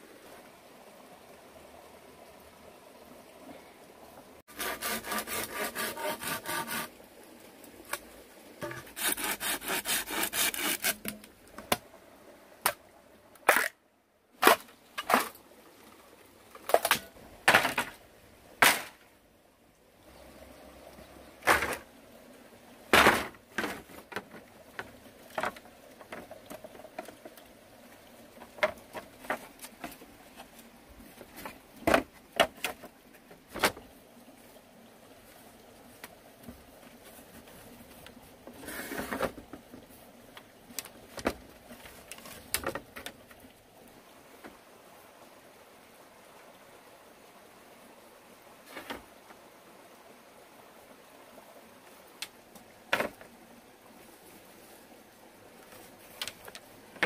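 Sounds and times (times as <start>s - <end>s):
bamboo being hand-sawn: 4.5s - 7.0s, 7.9s - 11.4s
bamboo poles knocking: 8.6s - 11.8s.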